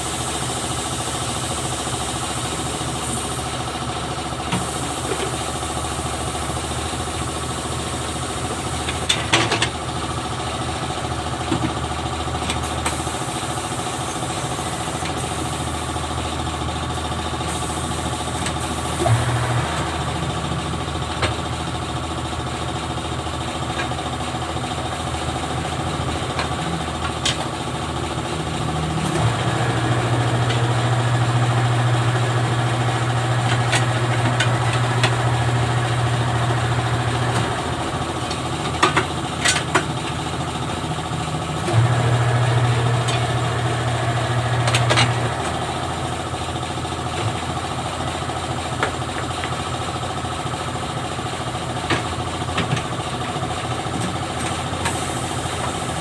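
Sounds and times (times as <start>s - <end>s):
steady machine hum: 0.0s - 56.0s
turntable motor running: 12.6s - 23.8s, 24.4s - 49.9s.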